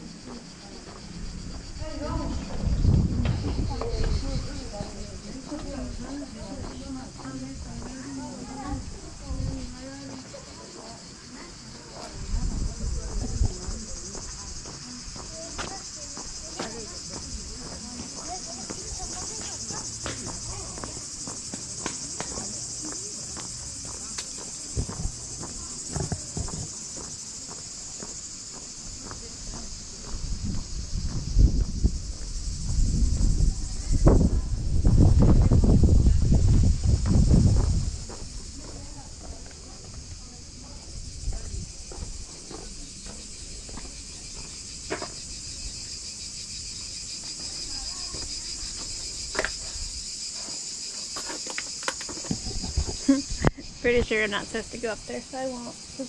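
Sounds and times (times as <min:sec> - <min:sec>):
insects buzzing: 0:00.0 - 0:56.0
low microphone rumble: 0:01.2 - 0:05.3, 0:30.2 - 0:38.6.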